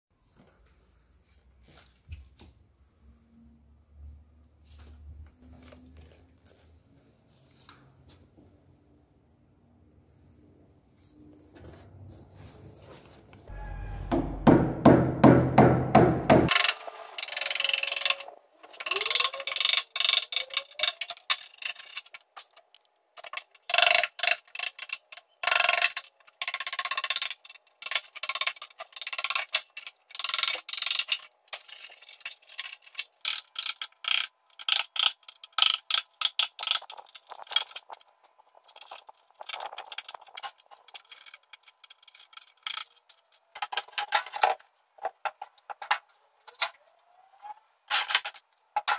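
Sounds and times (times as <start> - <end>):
bark cracking and splintering: 18.0 - 46.8.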